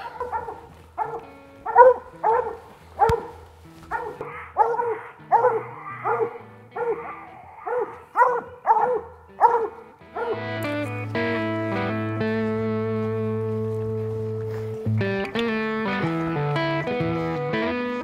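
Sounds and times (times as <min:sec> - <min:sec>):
dog barking: 0:00.0 - 0:10.4.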